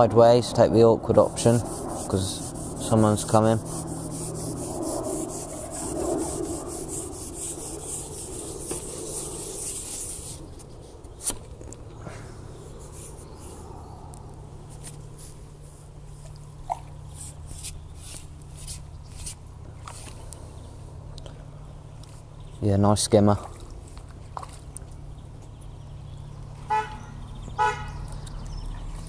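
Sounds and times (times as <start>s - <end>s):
fishing pole sections sliding: 17.1s - 20.3s.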